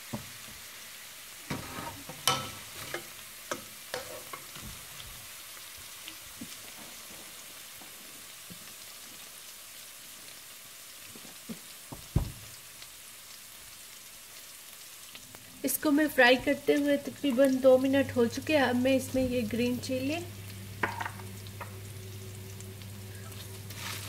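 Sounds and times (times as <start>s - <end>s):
paste sizzling in hot oil: 0.0s - 24.0s
wooden spatula scraping pan: 1.5s - 3.1s, 4.0s - 4.7s.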